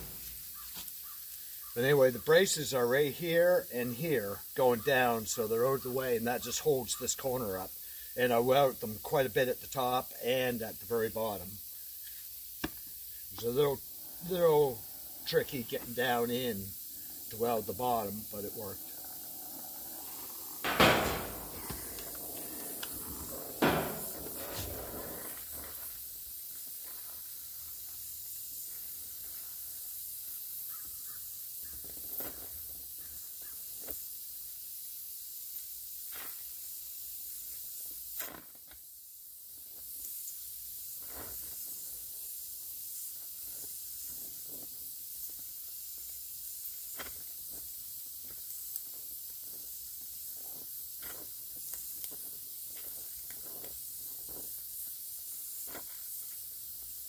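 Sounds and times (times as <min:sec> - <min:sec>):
loud torch pops: 0:00.0 - 0:00.7, 0:19.7 - 0:25.8
gas welding torch hissing: 0:00.0 - 0:57.0.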